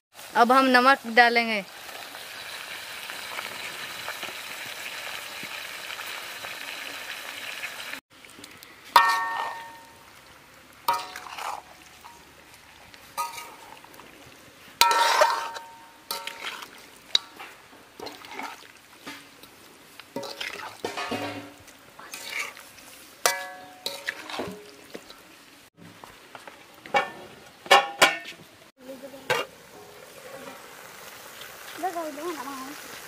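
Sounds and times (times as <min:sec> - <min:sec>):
curry sizzling in a metal pan: 0:00.1 - 0:08.0, 0:08.8 - 0:25.8, 0:26.4 - 0:33.0
steel spoon scraping a pan: 0:10.9 - 0:12.3, 0:13.1 - 0:13.8, 0:14.8 - 0:19.4, 0:20.2 - 0:25.2, 0:29.2 - 0:30.6.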